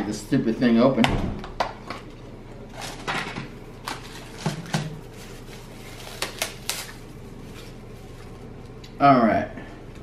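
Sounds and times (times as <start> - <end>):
paper and plastic crinkling: 3.8 - 8.5.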